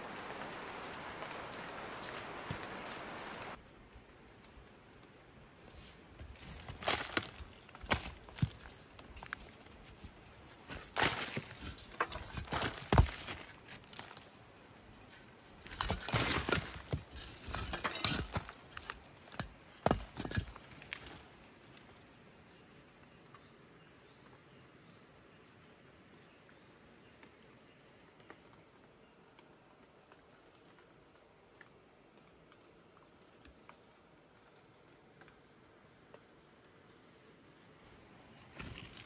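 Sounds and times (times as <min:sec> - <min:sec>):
bricks scraping and knocking: 0:05.8 - 0:14.2, 0:15.6 - 0:21.2.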